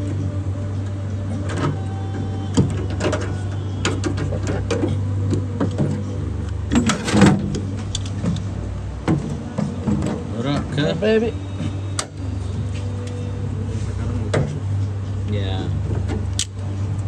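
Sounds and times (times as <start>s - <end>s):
steady low hum: 0.0s - 17.0s
metal creaking and clicking: 0.8s - 13.3s, 14.0s - 17.0s.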